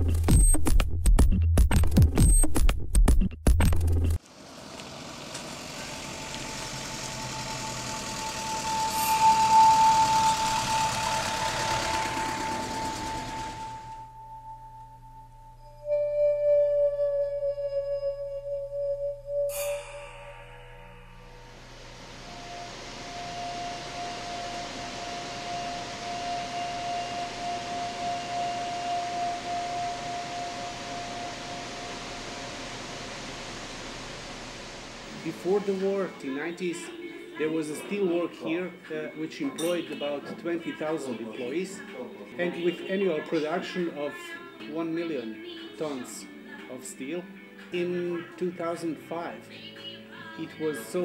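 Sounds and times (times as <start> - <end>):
mechanical hum: 4.2 - 16.0, 18.2 - 38.0
high whine: 4.7 - 36.8
electronic music sting: 6.6 - 14.8, 19.1 - 35.9
industrial hiss: 19.7 - 36.2.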